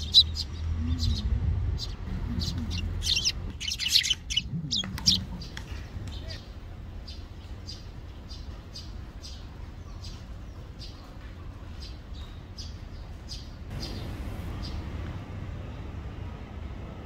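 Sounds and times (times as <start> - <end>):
steady low rumble: 0.0 - 9.1, 13.6 - 17.0
sparrows chirping: 0.0 - 16.9.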